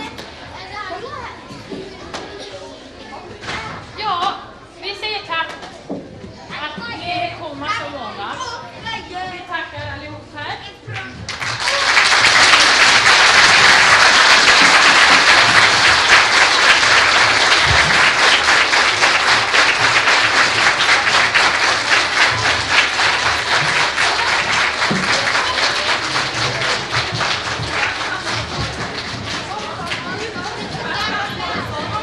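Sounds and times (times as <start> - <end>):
crowd clapping: 11.3 - 32.0.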